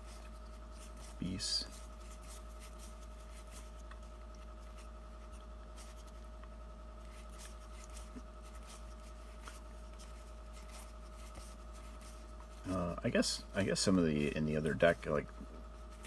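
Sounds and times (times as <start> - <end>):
cards shuffling and rustling: 0.0 - 6.3, 7.0 - 13.0
faint steady hum: 0.0 - 16.0.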